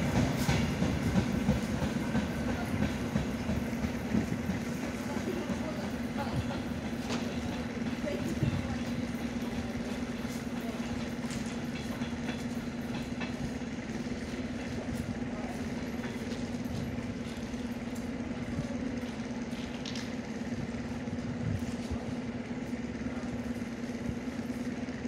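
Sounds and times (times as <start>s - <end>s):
electric train pulling away: 0.0s - 25.0s.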